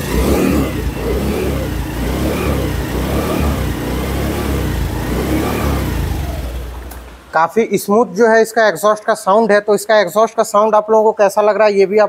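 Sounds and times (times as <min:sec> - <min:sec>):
scooter engine exhaust: 0:00.0 - 0:07.3.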